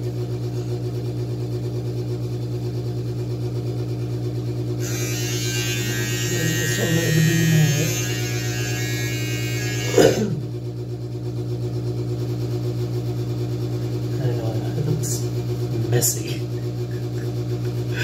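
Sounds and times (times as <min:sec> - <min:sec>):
low electrical hum: 0:03.8 - 0:18.0.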